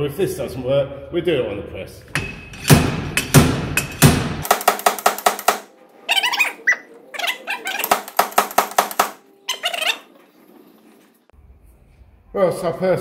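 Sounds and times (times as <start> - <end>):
sharp metal clicks and knocks: 2.1 - 5.7, 7.8 - 9.2.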